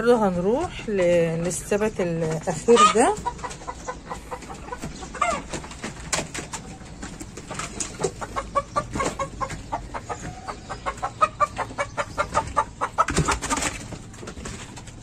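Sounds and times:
hens clucking: 0.0s - 15.0s.

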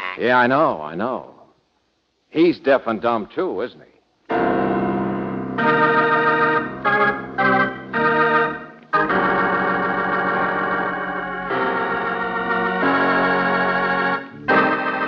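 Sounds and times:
organ chords: 4.3s - 15.0s.

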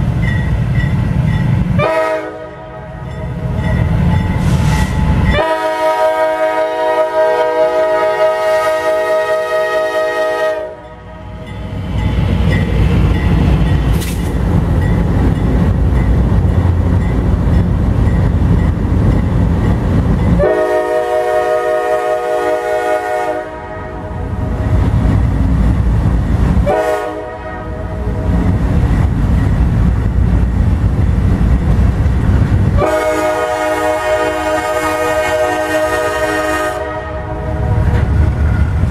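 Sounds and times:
locomotive air horn blasts: 1.8s - 3.0s, 4.4s - 11.0s, 20.4s - 24.3s, 26.6s - 28.3s, 32.8s - 37.9s
diesel engines rumbling: 10.1s - 38.9s.

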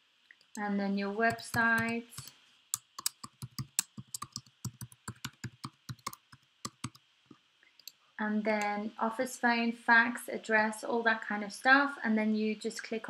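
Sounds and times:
computer keyboard typing: 1.3s - 7.0s.

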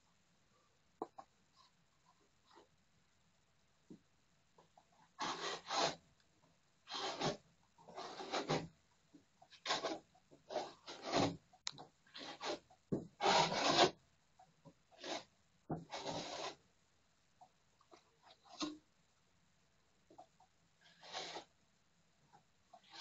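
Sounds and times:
hand rubbing rough plaster: 5.1s - 6.1s, 6.9s - 8.8s, 9.5s - 11.5s, 12.1s - 14.0s, 14.9s - 16.6s, 20.8s - 21.6s.

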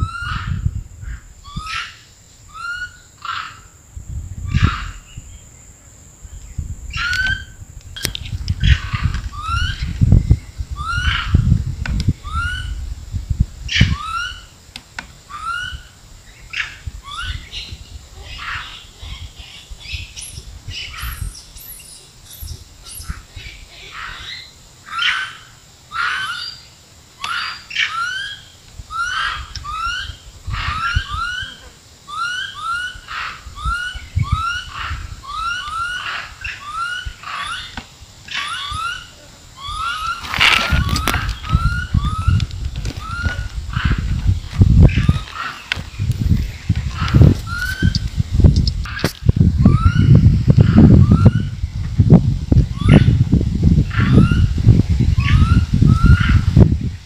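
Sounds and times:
animal chirping calls: 15.3s - 15.9s, 16.5s - 42.4s, 43.0s - 44.2s, 48.9s - 51.5s, 53.8s - 54.5s, 55.2s - 56.5s.

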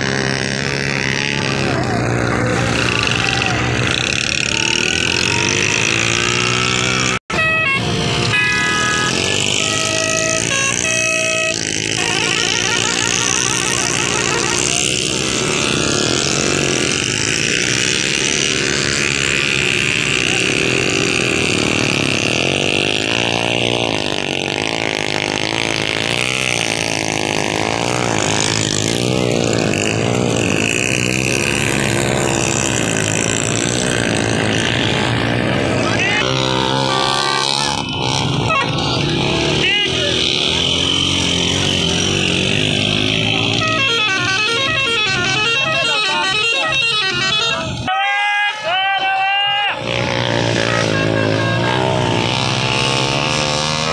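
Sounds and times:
motorcycle engine revving: 0.0s - 47.9s, 49.7s - 53.9s
vehicle horn honking: 7.3s - 15.0s, 43.1s - 48.6s, 50.6s - 52.4s.

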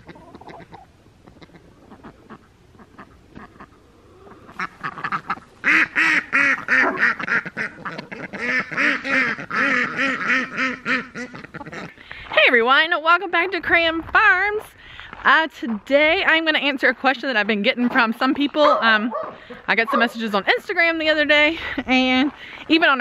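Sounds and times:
ducks quacking: 0.0s - 12.3s.

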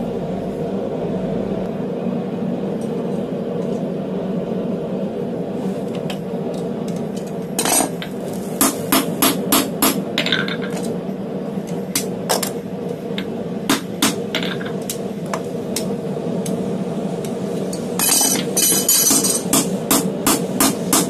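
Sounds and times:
low hum: 0.0s - 21.0s
hammer striking metal tool: 18.0s - 21.0s.

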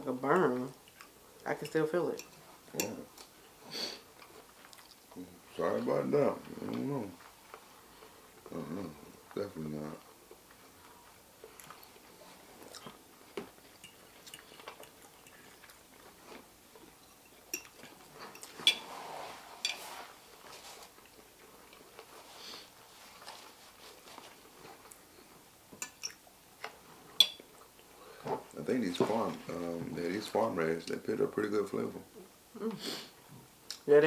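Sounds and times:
people chewing: 0.4s - 1.6s, 2.3s - 18.9s, 19.7s - 29.6s
forks tapping on plates: 17.1s - 18.8s, 27.2s - 27.5s.

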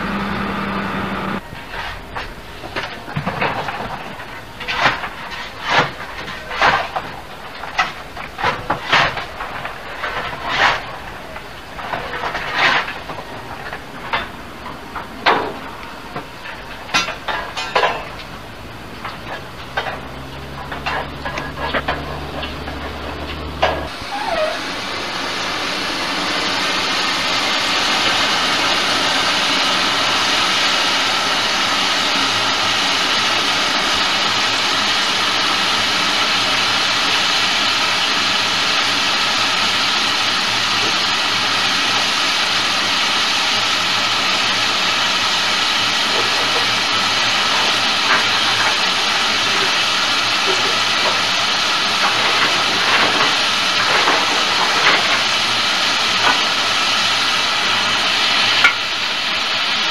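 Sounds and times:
steam venting hiss: 23.4s - 59.9s.

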